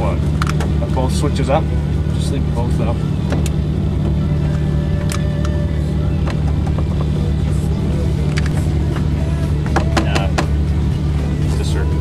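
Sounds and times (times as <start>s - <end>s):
car engine idling: 0.0s - 12.0s
sharp clicks: 4.5s - 5.6s.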